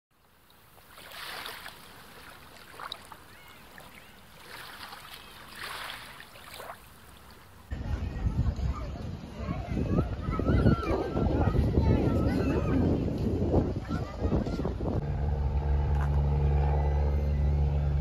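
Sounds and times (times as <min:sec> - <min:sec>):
small waves washing onto sand: 0:00.6 - 0:07.7.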